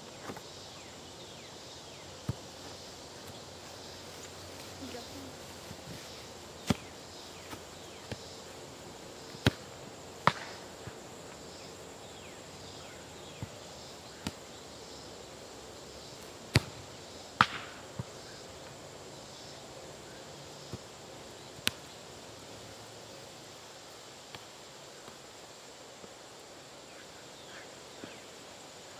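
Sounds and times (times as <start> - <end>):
faint insect chirping: 0.0 - 28.9
outdoor hiss: 0.0 - 28.9
soccer ball thumps: 2.2 - 3.4, 9.3 - 9.6.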